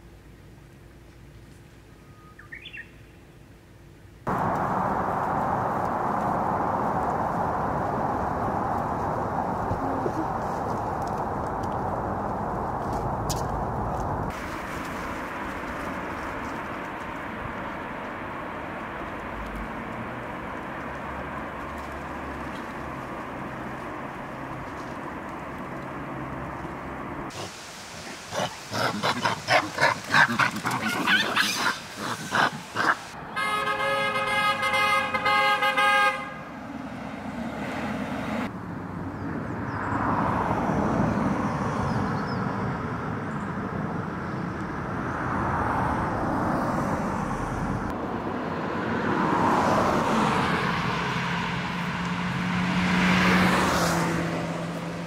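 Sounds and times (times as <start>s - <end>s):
road traffic passing: 0.0s - 55.0s
vehicle horn blast: 33.3s - 36.4s.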